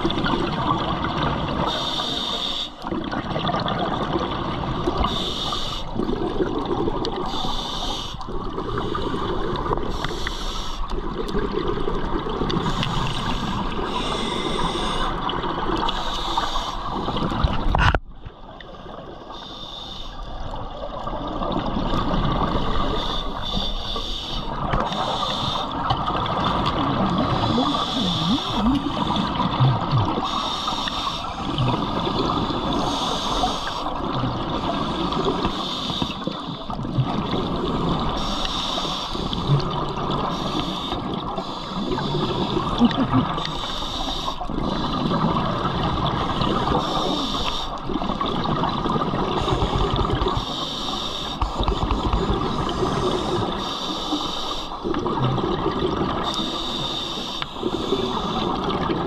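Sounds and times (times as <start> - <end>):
scuba regulator breathing: 1.6 - 2.8, 5.0 - 6.0, 7.1 - 11.0, 12.5 - 17.4, 19.3 - 20.4, 22.5 - 36.8, 37.7 - 39.5, 40.2 - 48.2, 49.2 - 54.8, 56.2 - 58.8.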